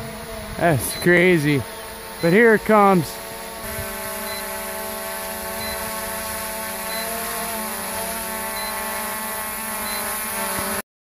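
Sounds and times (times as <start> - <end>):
drone propellers buzzing: 0.0 - 10.8
short high beeps: 0.8 - 1.1, 4.2 - 4.5, 5.6 - 5.9, 6.8 - 7.2, 8.5 - 8.8.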